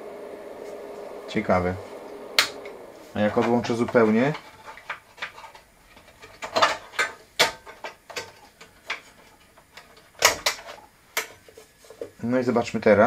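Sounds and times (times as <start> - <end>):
clicks and knocks of handling parts: 3.3 - 12.2.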